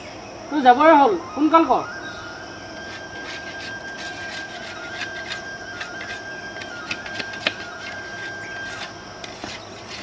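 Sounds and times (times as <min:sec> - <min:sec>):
steady high-pitched tone: 0:00.0 - 0:10.0
wooden sticks clicking and knocking: 0:02.8 - 0:10.0.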